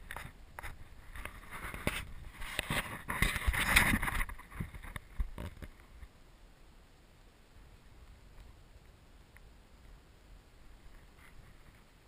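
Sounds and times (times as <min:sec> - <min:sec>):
camera handling rubbing and knocks: 0:00.0 - 0:05.9.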